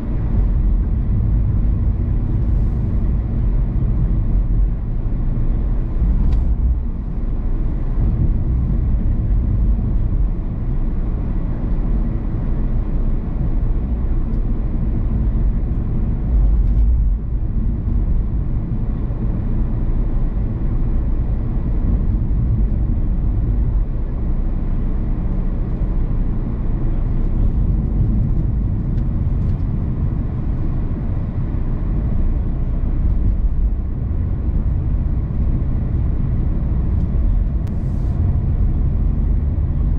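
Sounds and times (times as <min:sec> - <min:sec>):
tyre and road rumble: 0:21.4 - 0:39.9.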